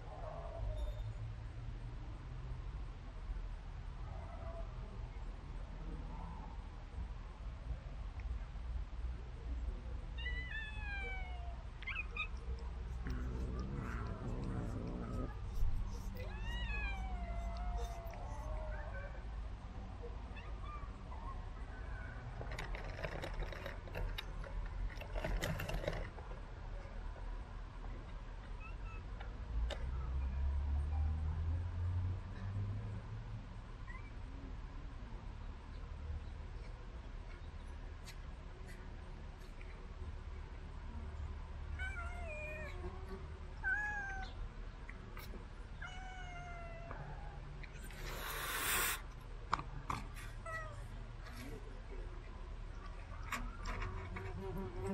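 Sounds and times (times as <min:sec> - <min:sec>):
cat meowing: 0:13.1 - 0:18.7.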